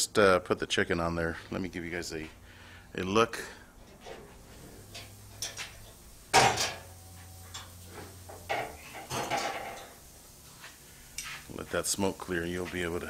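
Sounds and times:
heavy steel lid clunk: 5.0s - 7.7s, 8.3s - 10.0s.

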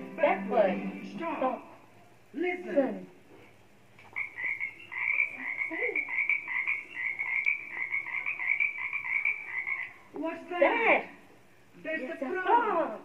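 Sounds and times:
frog croaking trill: 4.1s - 10.1s.

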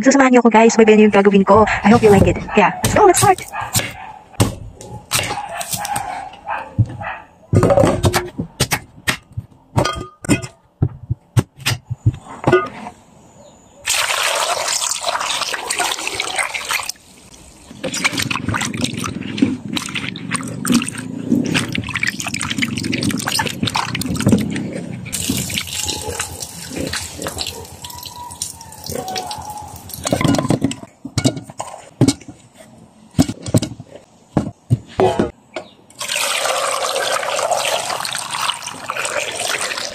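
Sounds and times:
pieces clunking into metal pot: 7.5s - 10.6s, 29.9s - 32.3s
water pouring: 13.9s - 24.3s, 25.1s - 30.4s, 36.0s - 39.9s.

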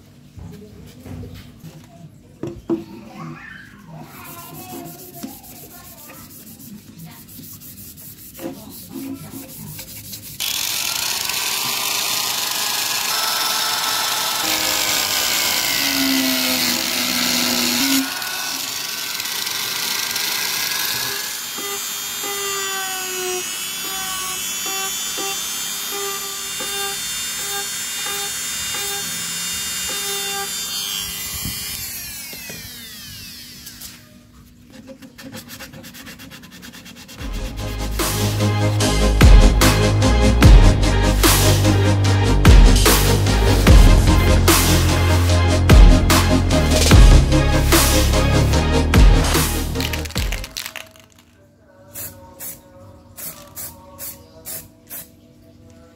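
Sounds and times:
hand sanding with sandpaper: 4.1s - 10.4s, 34.7s - 37.3s
rotary tool grinding plastic: 9.8s - 34.1s, 49.8s - 51.3s.

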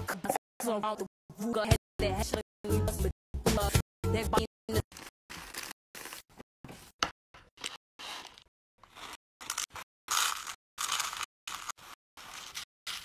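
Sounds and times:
sprinkles poured into plastic tub: 5.0s - 6.2s, 8.0s - 13.0s.

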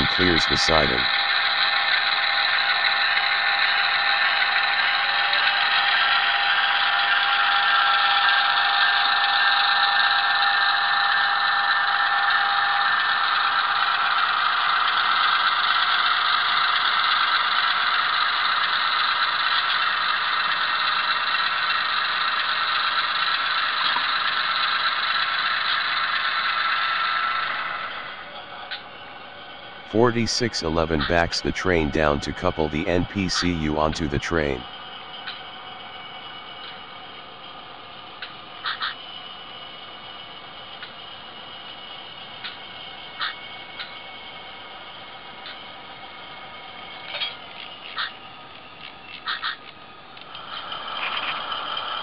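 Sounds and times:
diesel engine sound from small speaker: 0.0s - 9.3s, 29.9s - 34.6s.

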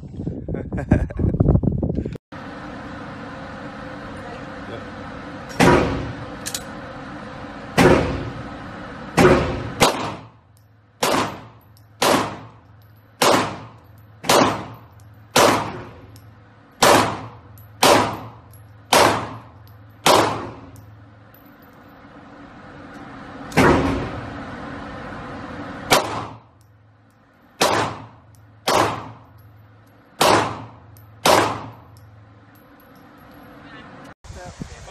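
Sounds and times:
pistol shots echoing indoors: 30.2s - 31.7s.

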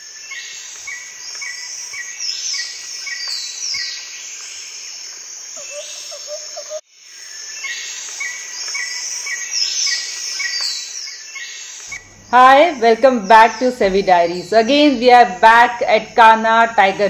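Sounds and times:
high falling bird calls: 0.0s - 15.6s
insects chirping: 0.0s - 17.0s
low warbling call: 5.6s - 6.8s.

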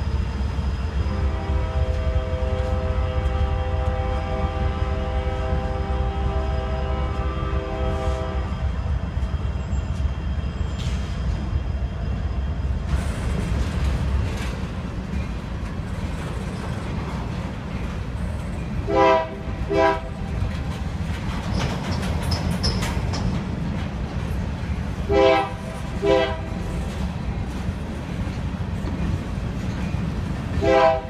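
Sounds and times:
freight cars rumbling on rails: 0.0s - 31.0s
locomotive air horn: 1.1s - 8.7s, 18.9s - 20.1s, 25.1s - 26.5s, 30.6s - 31.0s.

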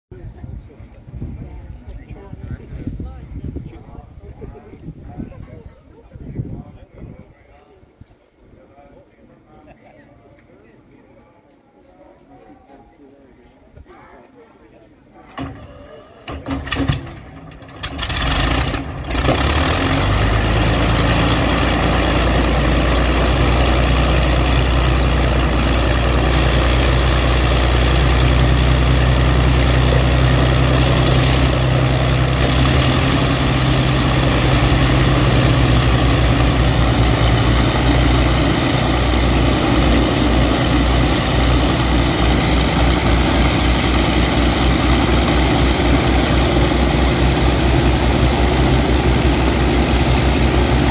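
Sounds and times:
piston aircraft engine starting and droning: 15.3s - 50.9s.

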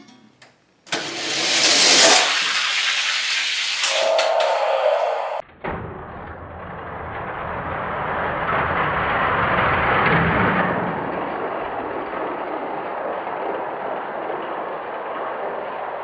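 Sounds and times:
toy cars rolling on plastic track: 0.9s - 4.6s, 6.8s - 15.9s.

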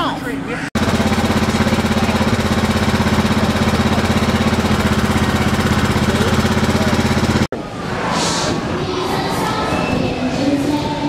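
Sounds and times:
small engine pulsing: 0.8s - 7.5s.

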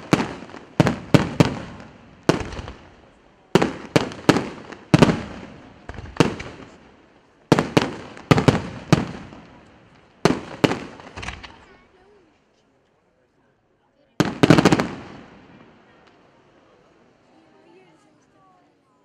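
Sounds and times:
firework shells bursting: 0.0s - 11.7s.

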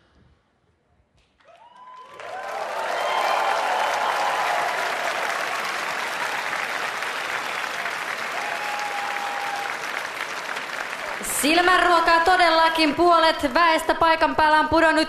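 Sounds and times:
people cheering: 1.4s - 13.0s
audience applauding: 1.4s - 13.1s.

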